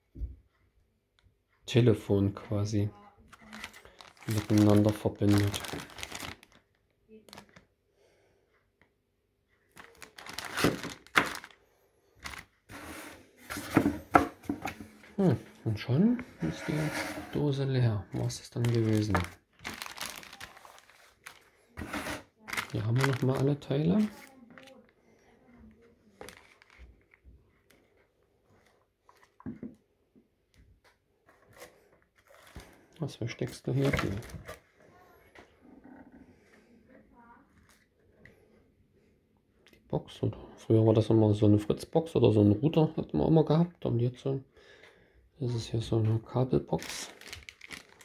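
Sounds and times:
plastic bag rustling: 3.3s - 7.7s, 9.7s - 11.6s, 12.2s - 13.9s, 18.2s - 24.9s, 26.0s - 29.4s, 31.4s - 34.7s, 46.7s - 48.0s.

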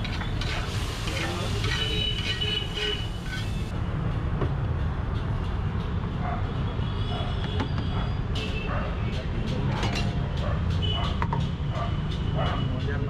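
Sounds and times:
metal spatula scraping on steel: 0.0s - 3.7s.

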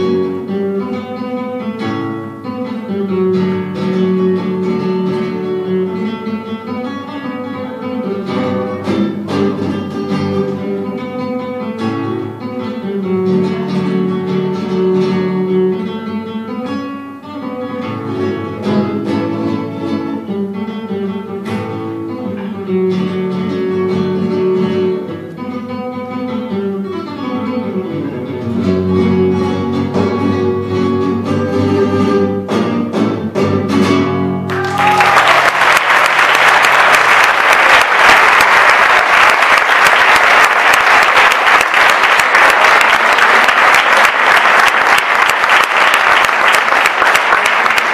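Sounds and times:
flamenco guitar playing: 0.0s - 47.9s
audience applause: 34.5s - 47.9s.

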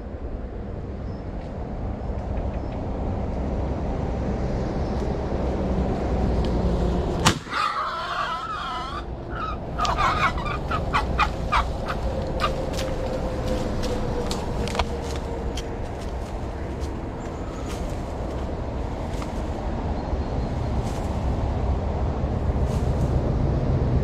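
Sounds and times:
motorway traffic rumble: 0.0s - 24.0s
wild boar squealing: 7.4s - 12.7s.

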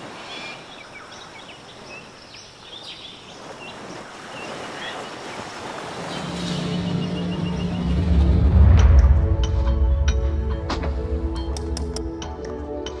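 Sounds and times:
waves washing onto beach: 0.0s - 8.7s.

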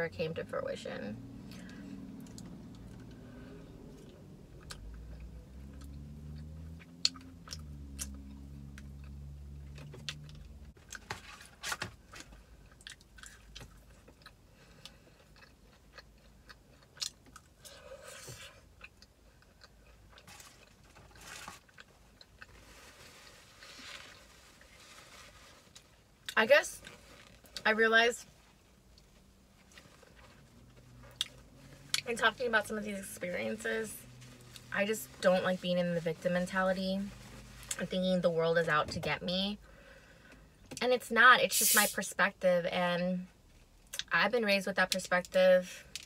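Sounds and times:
low droning hum: 0.0s - 10.9s.

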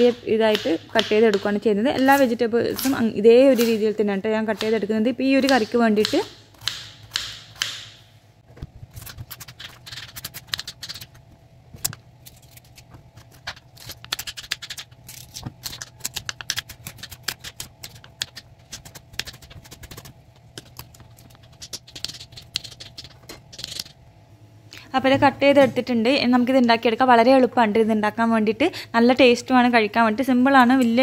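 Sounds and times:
knife chopping on wooden board: 5.5s - 8.0s.

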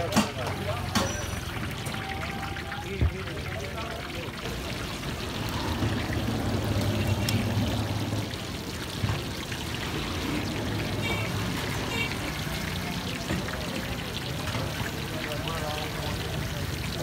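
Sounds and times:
oil sizzling and bubbling: 0.0s - 17.0s.

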